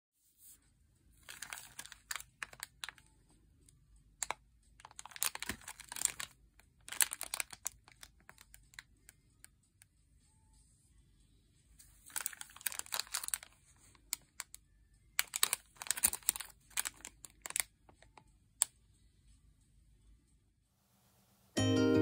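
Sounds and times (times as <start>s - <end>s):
plastic packaging crinkling: 1.2s - 3.1s, 4.2s - 8.8s, 12.0s - 14.5s, 15.2s - 18.2s.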